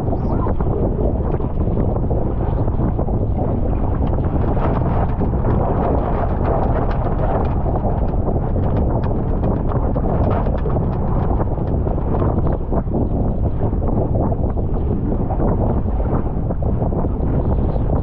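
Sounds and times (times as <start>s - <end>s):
wind buffeting microphone: 0.0s - 18.0s
water slapping against hull: 2.7s - 13.1s.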